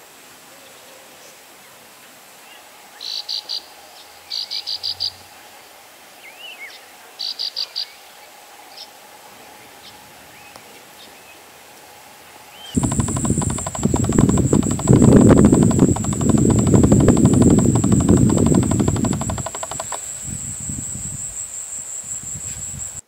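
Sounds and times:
loud rumbling with high whine: 12.8 - 20.0
insect chirps: 12.8 - 23.0.

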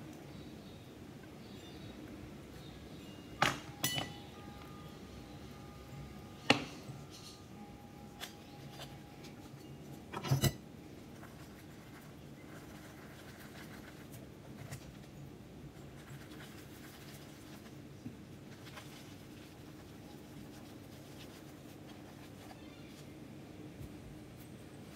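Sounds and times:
glass muller clinking on glass slab: 3.4 - 4.2.

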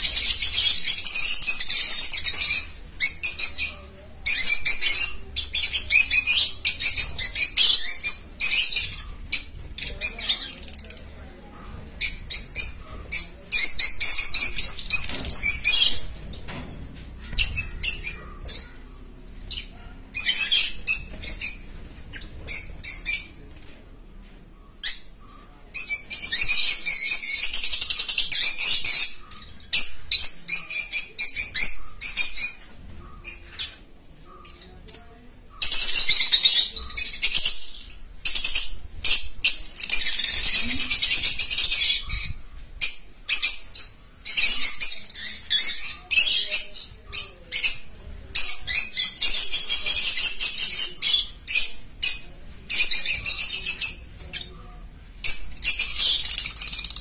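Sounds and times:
birds chattering shrilly: 17.1 - 23.4, 35.4 - 57.0.

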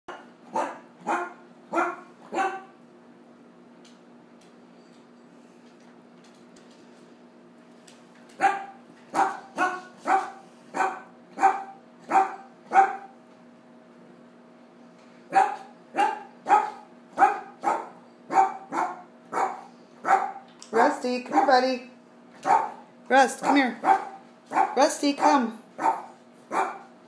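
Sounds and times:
dog barking: 0.1 - 2.7, 8.4 - 13.1, 15.3 - 20.5, 21.3 - 21.7, 22.4 - 22.8, 23.4 - 26.9.

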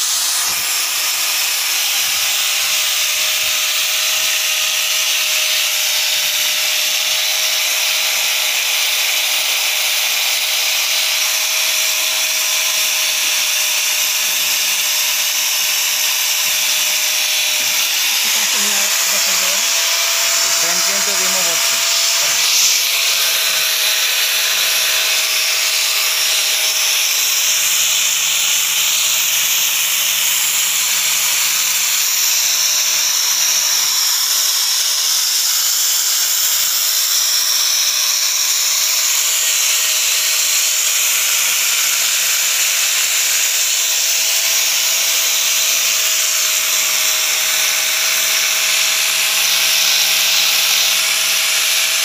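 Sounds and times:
angle grinder motor whine: 0.0 - 52.0.

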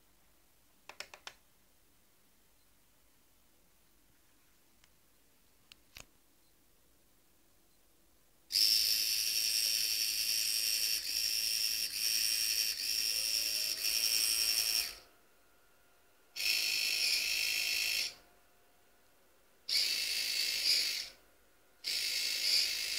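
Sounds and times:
small electric motor whining: 8.5 - 15.1, 16.4 - 18.2, 19.7 - 21.2, 21.8 - 22.9.

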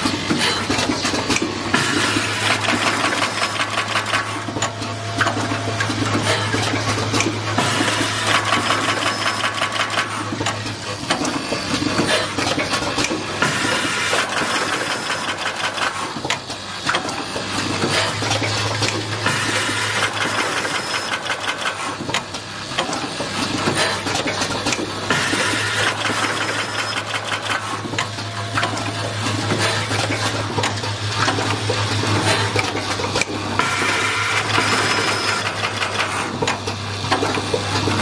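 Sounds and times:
machine rapid mechanical clatter: 0.0 - 38.0.

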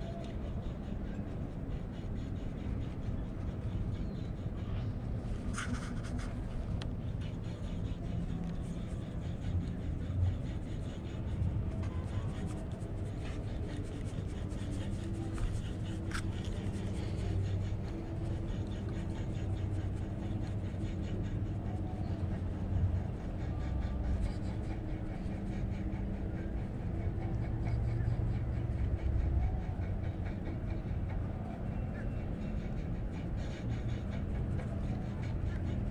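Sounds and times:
steady low rumble: 0.0 - 35.9.

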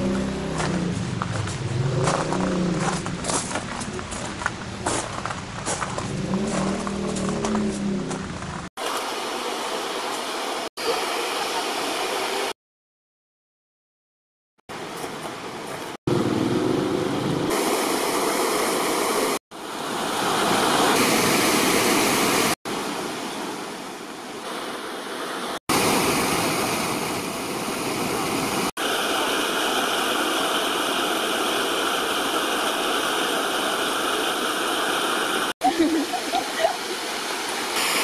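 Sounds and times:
stream water rushing: 8.8 - 12.5, 16.6 - 38.0.

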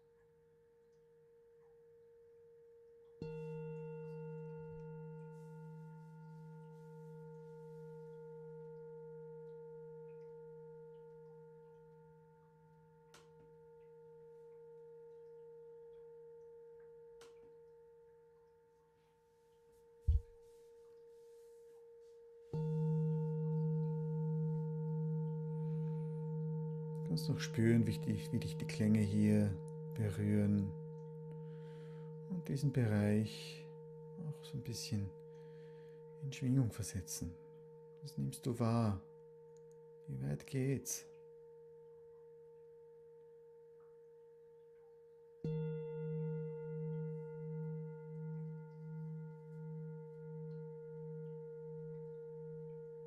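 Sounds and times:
metal singing bowl ringing: 1.7 - 40.1, 41.0 - 53.0
short low thump: 20.1 - 20.4.

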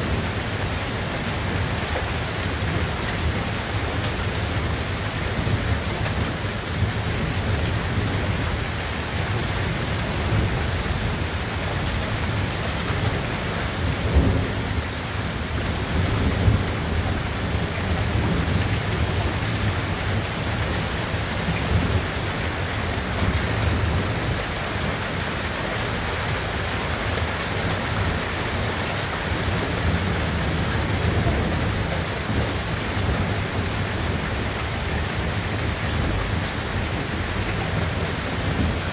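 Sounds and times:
heavy rain falling: 0.0 - 38.9
low rolling thunder: 11.9 - 25.2, 27.4 - 38.9.

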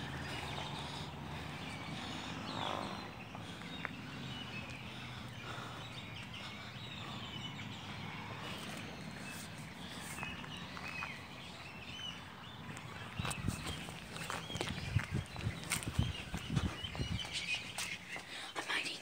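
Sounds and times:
birds chirping: 0.0 - 19.0.

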